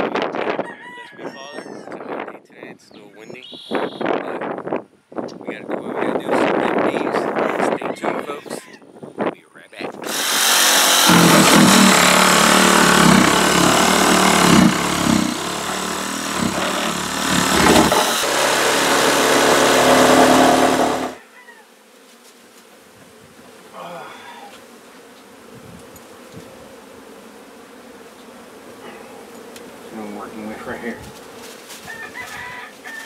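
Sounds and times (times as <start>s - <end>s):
bees buzzing: 10.0s - 21.8s, 22.4s - 31.8s.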